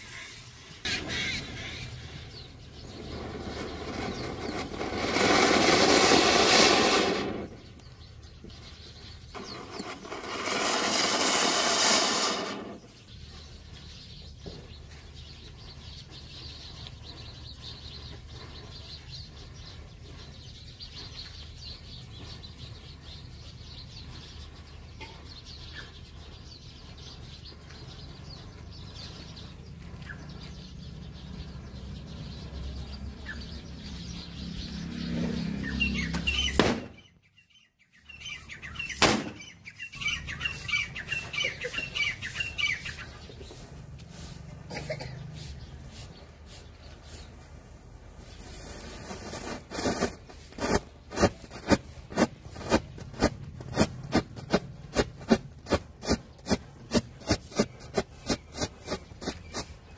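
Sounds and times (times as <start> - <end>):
firecracker hissing: 0.0 - 7.6, 9.4 - 13.0, 48.4 - 53.3
matchsticks fizzing and crackling: 9.4 - 12.8.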